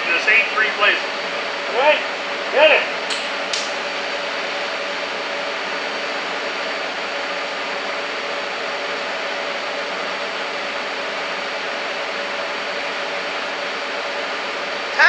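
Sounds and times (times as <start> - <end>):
arc striking click: 3.1 - 3.8.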